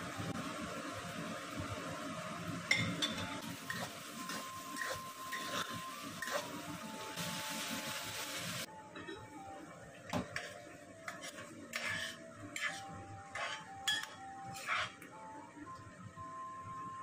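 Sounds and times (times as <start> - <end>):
soft background music: 0.0 - 17.0
metal ladle scraping in clay pot: 10.4 - 15.1.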